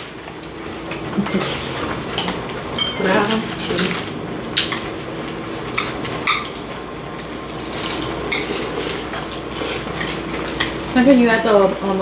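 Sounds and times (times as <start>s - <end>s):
metal utensils clinking on dishes: 2.2s - 4.0s, 7.8s - 10.8s.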